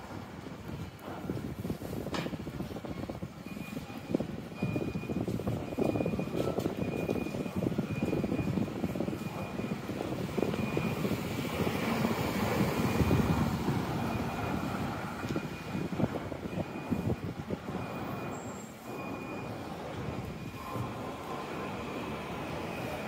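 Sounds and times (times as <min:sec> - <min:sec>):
city street low rumble: 0:00.0 - 0:23.0.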